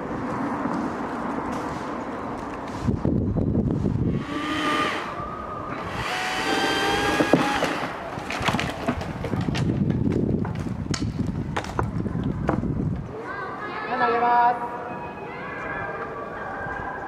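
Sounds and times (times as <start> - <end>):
chainsaw running at high revs: 5.9 - 7.8
wood cracking and snapping: 7.2 - 11.9.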